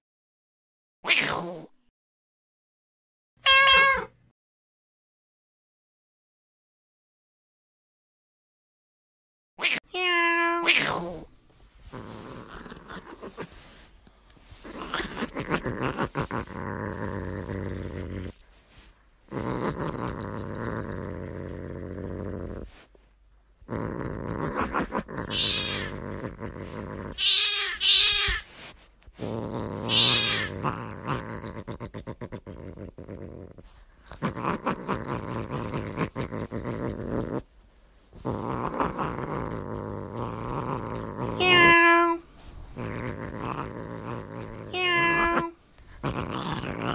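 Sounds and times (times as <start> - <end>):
cats growling and yowling: 9.6 - 11.3, 14.6 - 18.4, 23.7 - 28.5, 29.4 - 33.5, 38.2 - 46.9.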